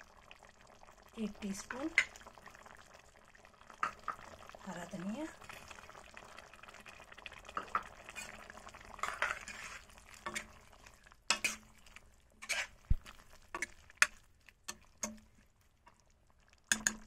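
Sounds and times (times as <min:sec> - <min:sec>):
spoon stirring thick curry: 0:05.4 - 0:17.0
spoon clinking on metal pan: 0:11.3 - 0:11.6, 0:16.7 - 0:17.0.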